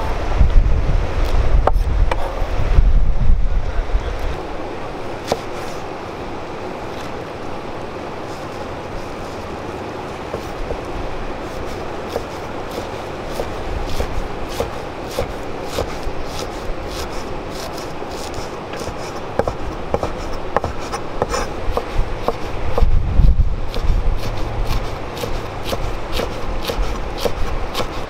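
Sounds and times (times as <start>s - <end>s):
steady rushing noise: 0.0s - 28.0s
knife chopping on wooden board: 5.2s - 5.6s, 12.1s - 22.9s, 23.7s - 28.0s.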